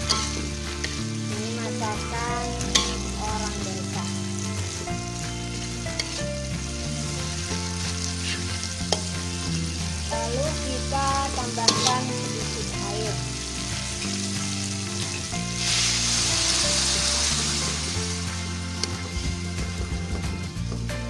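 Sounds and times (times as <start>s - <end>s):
spatula scraping a wok: 0.0s - 1.2s, 2.6s - 3.2s, 7.0s - 9.8s, 11.6s - 12.2s
food sizzling in oil: 0.0s - 20.6s.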